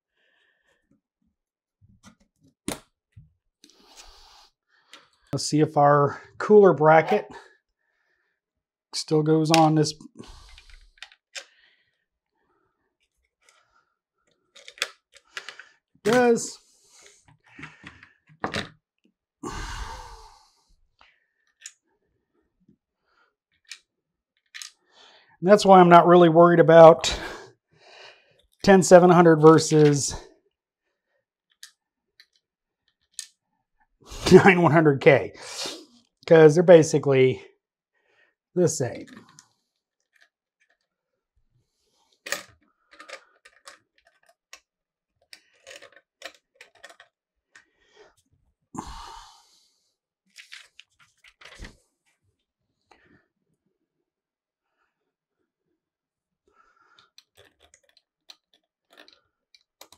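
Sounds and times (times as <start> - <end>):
breathy sigh: 19.4 - 20.6, 48.8 - 49.6.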